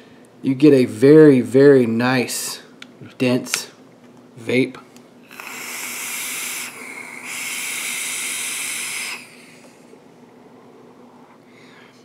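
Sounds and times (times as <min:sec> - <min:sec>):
vape draw hissing: 0:05.3 - 0:09.9.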